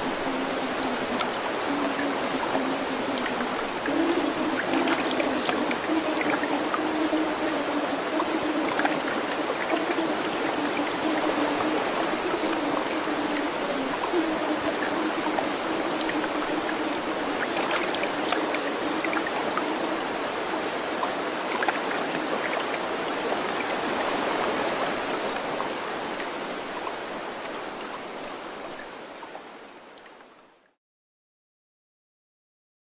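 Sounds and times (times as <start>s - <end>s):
water droplet ticks: 0.0s - 19.7s
rushing running water: 0.0s - 30.7s.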